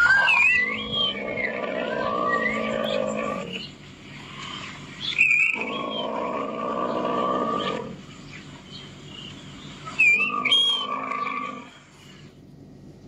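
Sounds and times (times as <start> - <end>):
buffalo calls through a speaker: 0.0 - 3.6.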